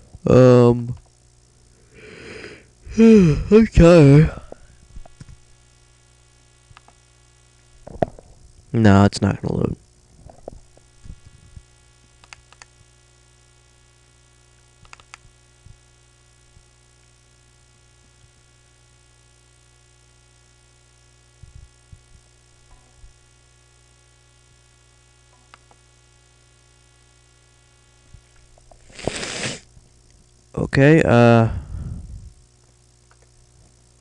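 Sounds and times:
electrical mains hum: 0.0 - 34.0
faint clicks: 12.2 - 12.7, 14.8 - 15.3.

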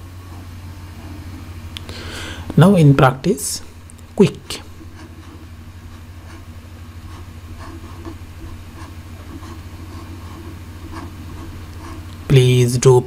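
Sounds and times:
low fluttering hum: 3.6 - 12.4.

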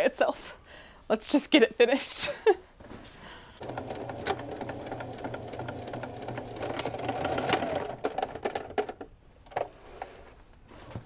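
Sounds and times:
sewing machine stitching: 3.6 - 8.8.

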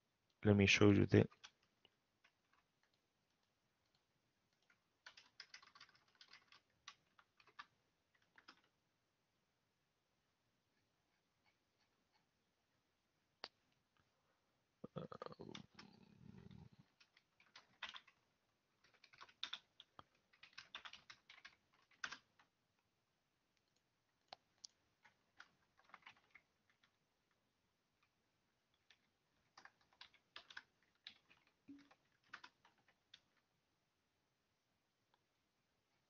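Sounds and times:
computer keyboard typing: 1.2 - 8.8, 15.4 - 22.5, 24.3 - 27.1, 28.8 - 33.4.

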